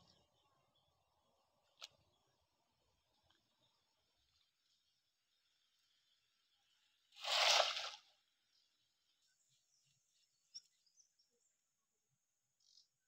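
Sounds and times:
net splashing into water: 7.2s - 8.1s.

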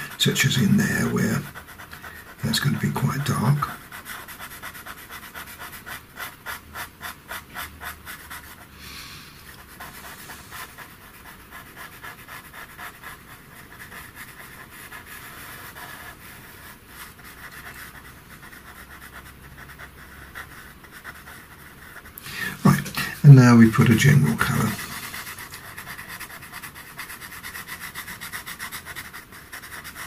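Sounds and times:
pencil scratching on paper: 0.0s - 8.7s, 9.3s - 30.0s.

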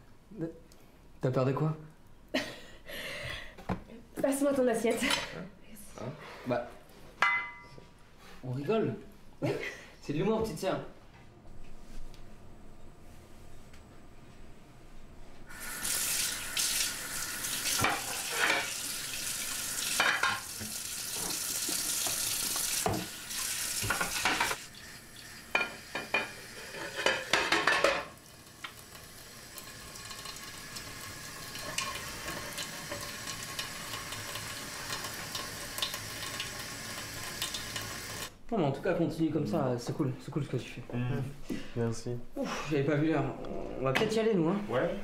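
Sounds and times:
ceramic dishes clinking: 7.2s - 7.8s
tap running into sink: 19.9s - 24.6s.

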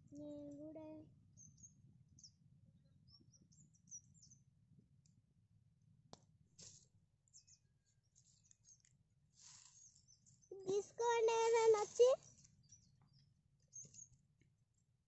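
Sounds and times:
faint high bird chirps: 0.1s - 4.5s, 9.5s - 14.2s.

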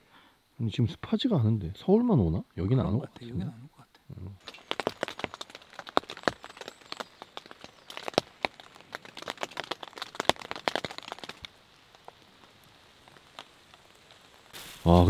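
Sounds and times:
faint rain hiss: 0.0s - 15.0s
raindrops tapping on tent: 4.4s - 15.0s.

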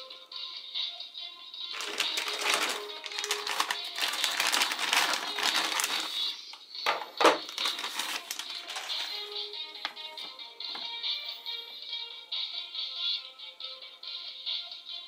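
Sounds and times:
plastic bags crinkling: 1.7s - 9.3s.

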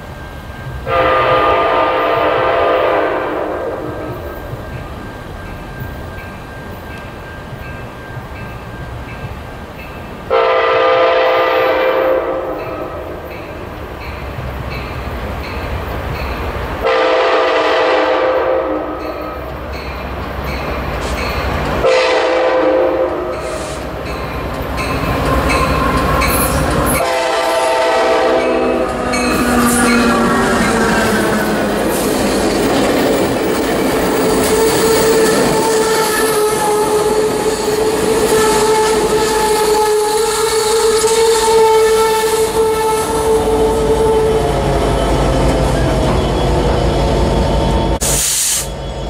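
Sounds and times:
railroad crossing bell ringing: 0.0s - 41.8s
train running rumble: 0.0s - 49.0s
locomotive horn blasts: 0.8s - 4.2s, 10.3s - 13.2s, 16.8s - 19.3s, 21.8s - 23.9s, 25.4s - 31.7s, 34.4s - 46.8s.

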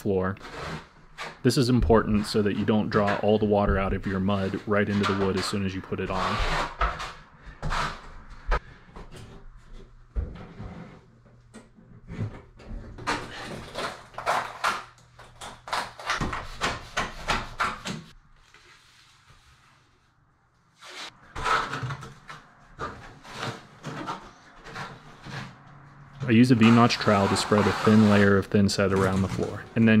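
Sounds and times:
wet sponge wiping floor: 26.5s - 28.4s.

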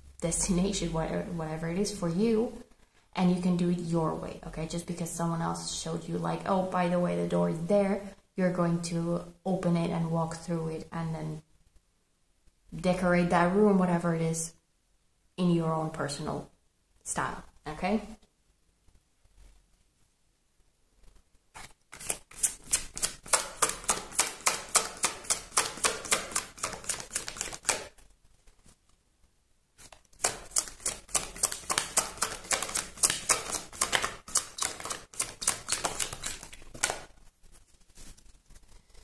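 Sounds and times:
cards being shuffled: 21.1s - 28.9s, 29.8s - 39.0s.

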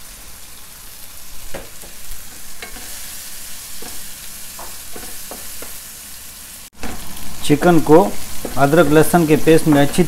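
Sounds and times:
chicken sizzling in oil: 0.0s - 10.0s
spatula scraping a pan: 1.4s - 5.8s.

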